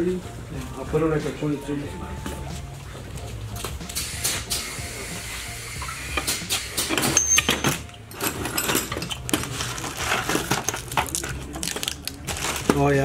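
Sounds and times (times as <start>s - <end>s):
metal hand tools clattering: 6.9s - 11.4s.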